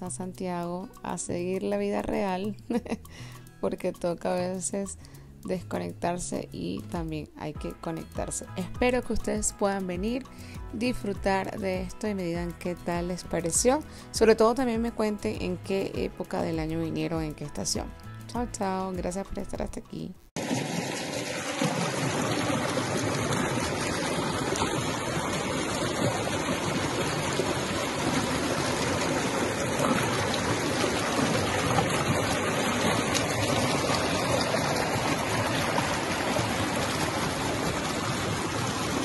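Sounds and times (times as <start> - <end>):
mountain stream rushing over boulders: 20.4 - 39.0.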